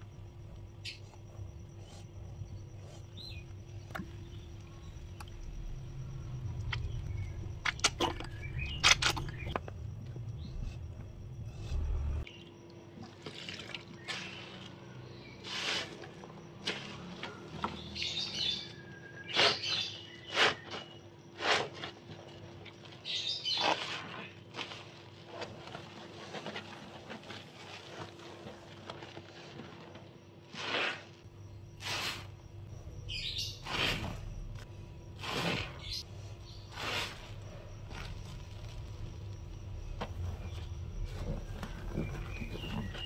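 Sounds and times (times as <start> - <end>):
birds chirping: 0.0 - 12.6, 31.4 - 43.0.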